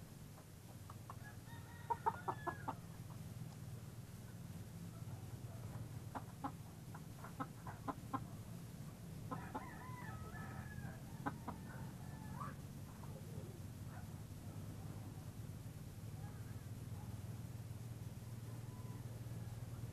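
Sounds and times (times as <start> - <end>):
rooster crowing: 1.2 - 2.8, 9.3 - 12.6, 18.2 - 19.8
chickens clucking: 5.6 - 8.4, 11.2 - 13.5.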